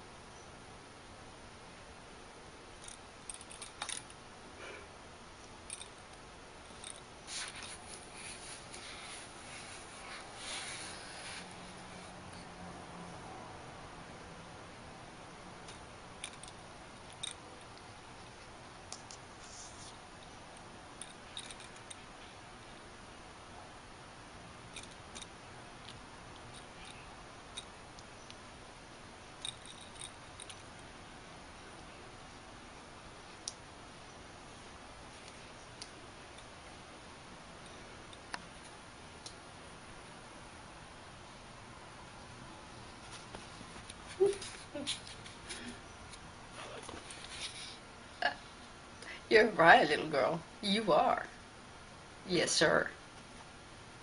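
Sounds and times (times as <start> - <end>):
faint steady hiss: 0.0 - 54.0.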